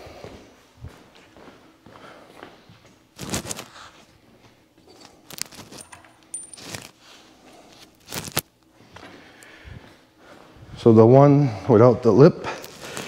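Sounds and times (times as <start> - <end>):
small hard parts clinking: 5.3 - 7.0.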